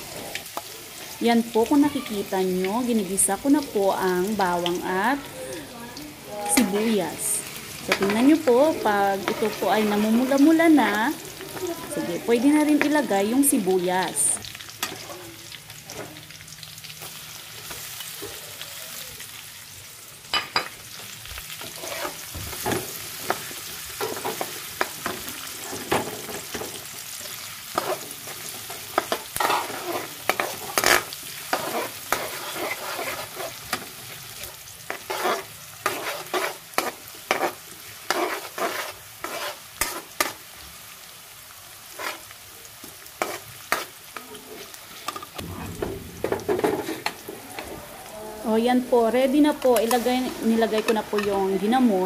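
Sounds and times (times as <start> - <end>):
garlic and onion sizzling in oil: 0.0 - 52.0
metal spoon scraping wok: 21.6 - 22.3, 29.0 - 33.8, 34.9 - 40.4, 41.9 - 42.3, 48.4 - 51.6.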